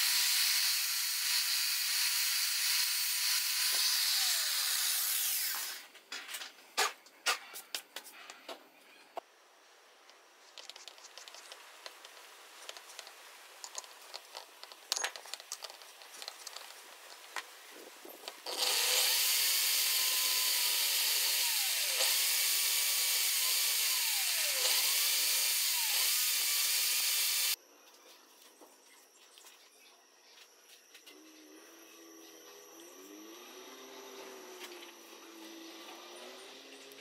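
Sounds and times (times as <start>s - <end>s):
electric drill whining: 0.0s - 5.9s, 18.4s - 27.6s, 31.1s - 36.2s.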